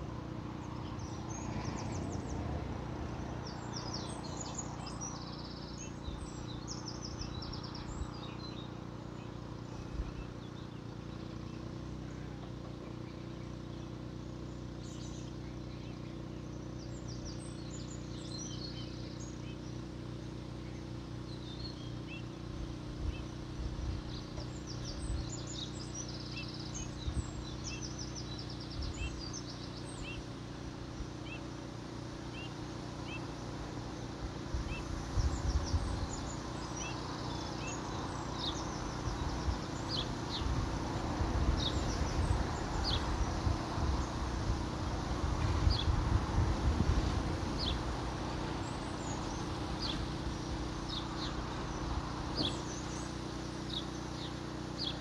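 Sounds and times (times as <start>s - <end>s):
small birds chirping: 0.0s - 55.0s
wind buffeting microphone: 34.3s - 36.8s, 38.2s - 53.0s.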